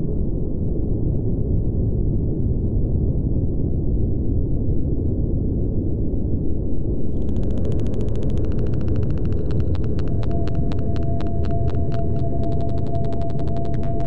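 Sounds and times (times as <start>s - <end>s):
muffled low rumble: 5.0s - 14.0s.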